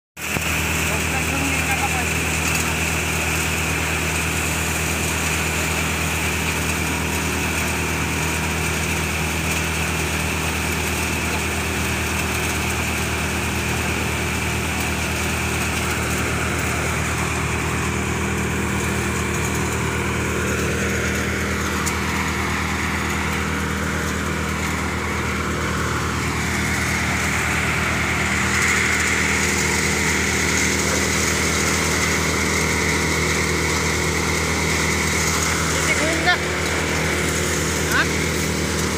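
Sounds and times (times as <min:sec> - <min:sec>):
threshing machine humming: 0:00.2 - 0:38.9.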